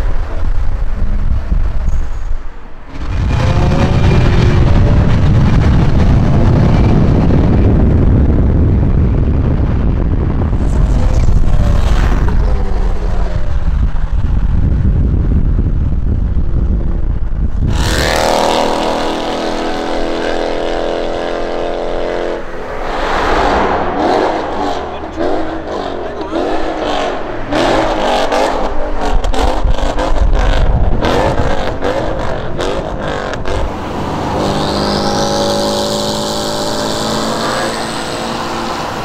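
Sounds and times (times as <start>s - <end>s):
car engines rumbling: 0.0s - 39.0s
traffic noise: 0.0s - 39.0s
steady engine note: 17.7s - 28.9s.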